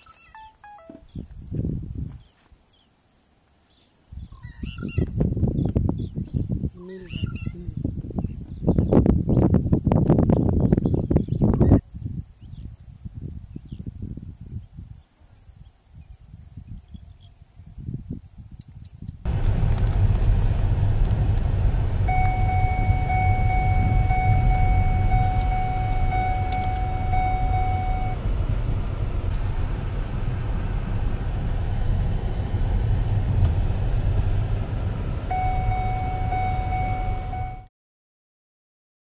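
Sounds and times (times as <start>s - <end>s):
engine and road rumble: 0.0s - 11.8s, 17.7s - 37.7s
steady high tone: 21.8s - 28.2s, 35.1s - 37.7s.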